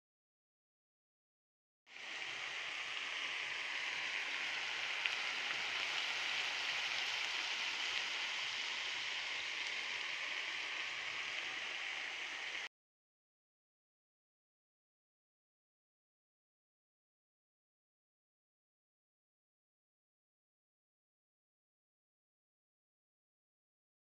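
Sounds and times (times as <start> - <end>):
food sizzling in a frying pan: 1.9 - 12.7.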